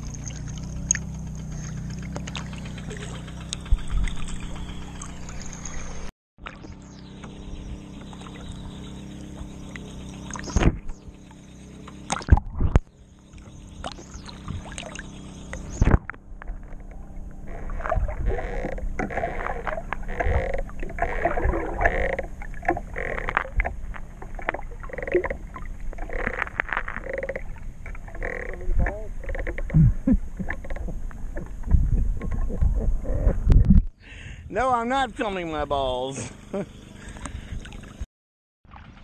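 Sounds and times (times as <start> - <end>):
muffled underwater sloshing: 0.0 - 6.7, 7.8 - 33.5
water splashes: 0.0 - 6.8, 13.8 - 29.5, 38.6 - 39.0.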